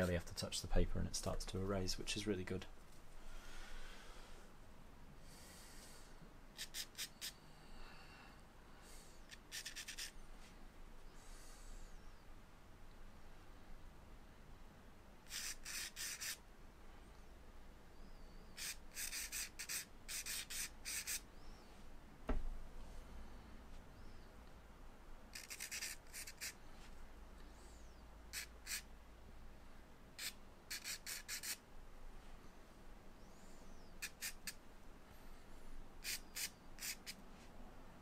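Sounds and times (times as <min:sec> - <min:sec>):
charcoal scratching on paper: 0:06.6 - 0:07.4, 0:09.3 - 0:10.2, 0:15.3 - 0:16.4, 0:18.6 - 0:21.2, 0:25.3 - 0:26.6, 0:28.4 - 0:28.8, 0:30.2 - 0:31.6, 0:36.0 - 0:37.2.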